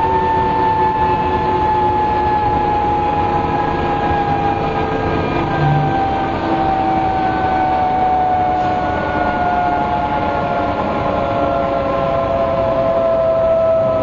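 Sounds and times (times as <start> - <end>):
bus differential whining: 0.0 - 14.0
road noise: 3.2 - 9.0.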